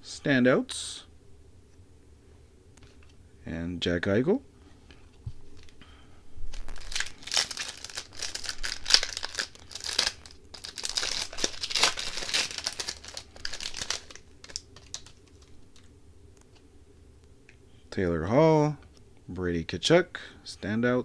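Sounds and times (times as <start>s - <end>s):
wrapper crinkling and tearing: 6.5s - 15.9s.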